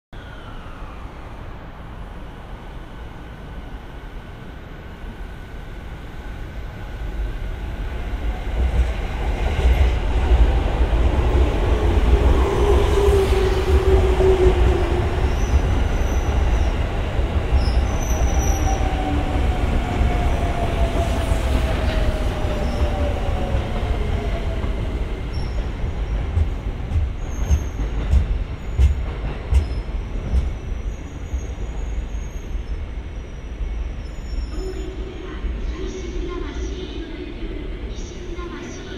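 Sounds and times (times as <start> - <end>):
falling tone of braking train: 0.2 - 6.9, 29.6 - 36.8
train wheels rumbling on rails: 6.7 - 32.8
train wheels clacking: 25.6 - 30.8.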